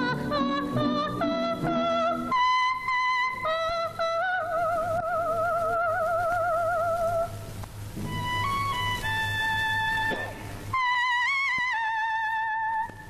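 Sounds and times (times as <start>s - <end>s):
soprano singing with vibrato: 0.0s - 7.4s.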